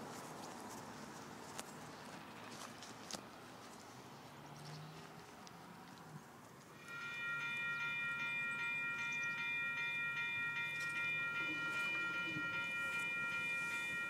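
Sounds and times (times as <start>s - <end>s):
railroad crossing bell ringing: 6.7s - 14.0s.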